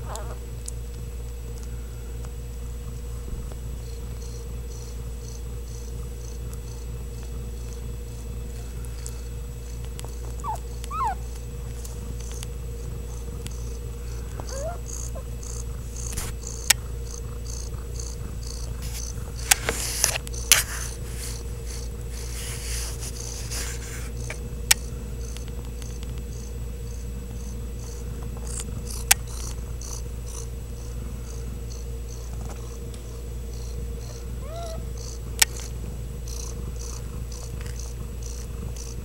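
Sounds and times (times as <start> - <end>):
cat purring: 0.0 - 39.0
sharp clicks: 24.1 - 26.3, 28.4 - 30.5.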